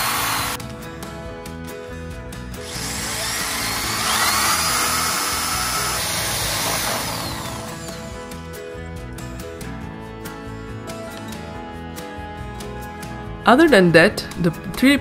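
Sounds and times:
drill boring through wood: 0.0 - 0.6, 2.6 - 8.5
background music: 0.0 - 15.0.

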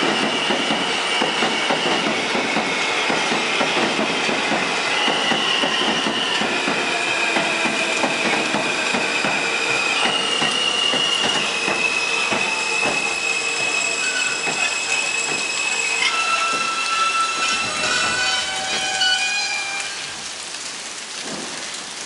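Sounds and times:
high-pitched wheel squeal: 4.8 - 20.1.

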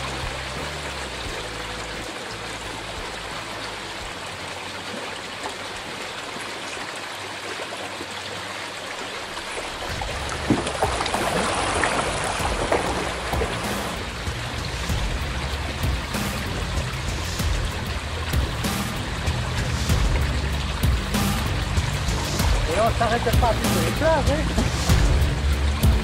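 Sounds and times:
paddle splashes: 0.0 - 26.0
river water rushing: 0.0 - 26.0
low rumble: 9.9 - 26.0.

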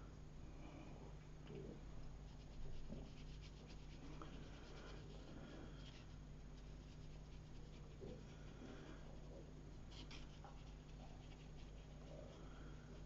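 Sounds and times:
steady low hum: 0.0 - 13.0
paintbrush dabbing on paper: 5.8 - 8.3, 9.9 - 12.4.

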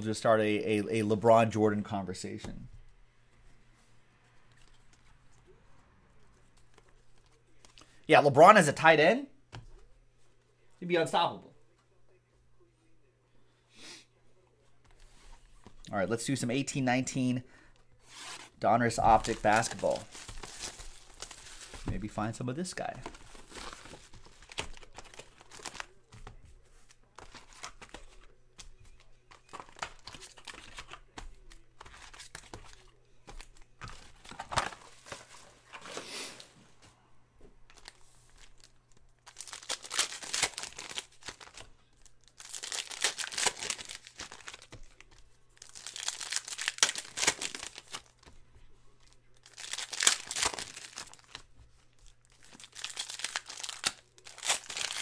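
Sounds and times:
foil wrappers crinkling and tearing: 18.2 - 22.2, 37.7 - 48.3, 49.0 - 55.0.

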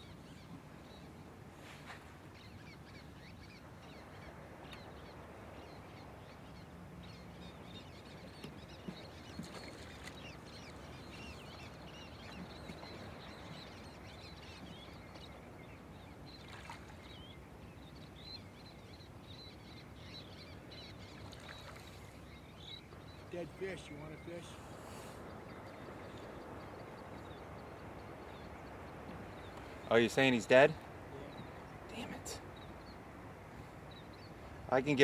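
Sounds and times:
birds chirping: 0.0 - 35.0
low outdoor hiss: 0.0 - 35.0
light ticks or small splashes: 8.4 - 11.6, 16.3 - 17.3, 21.0 - 22.7.

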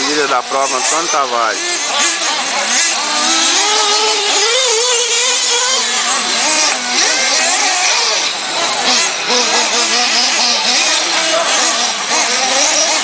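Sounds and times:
small nitro engines whining: 0.0 - 13.0.

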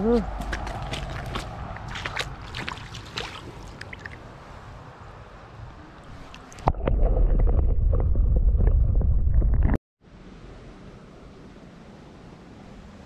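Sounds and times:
water sloshing and splashing: 0.6 - 4.6, 6.0 - 9.8.

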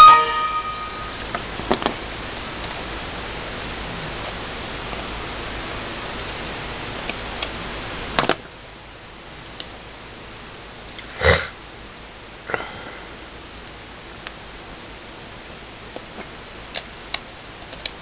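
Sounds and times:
person sniffing: 11.0 - 11.6.

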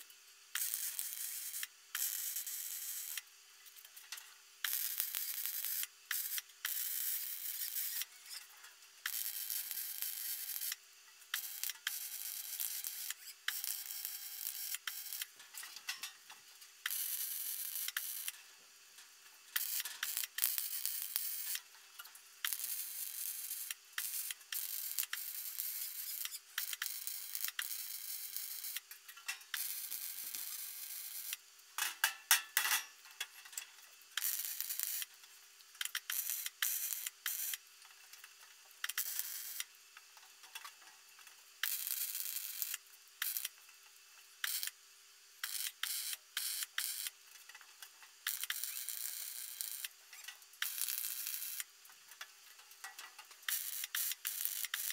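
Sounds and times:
electric arc welding: 0.0 - 8.4, 9.0 - 18.4, 19.5 - 32.7, 33.5 - 37.7, 38.8 - 39.8, 41.6 - 43.6, 44.4 - 44.8, 45.4 - 47.2, 48.2 - 51.8, 52.8 - 54.9.

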